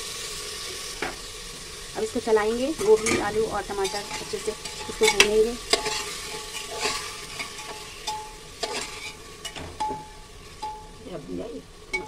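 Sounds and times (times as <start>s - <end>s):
vegetables sizzling in oil: 0.0s - 12.0s
spatula scraping a metal pot: 2.8s - 10.9s.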